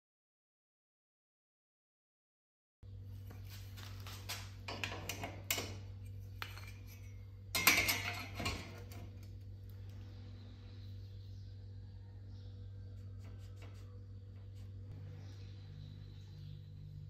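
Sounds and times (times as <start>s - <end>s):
steady low hum: 2.8s - 17.0s
ruler and pen clinking on metal rack: 6.4s - 9.0s.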